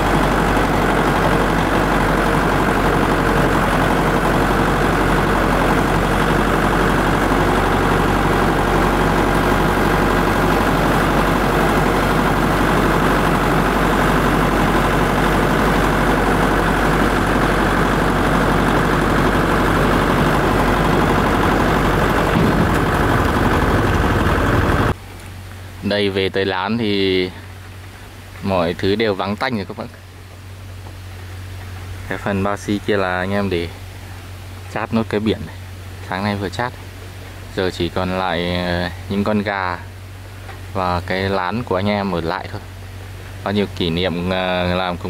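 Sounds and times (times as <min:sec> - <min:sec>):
engine running loudly: 0:00.0 - 0:25.0.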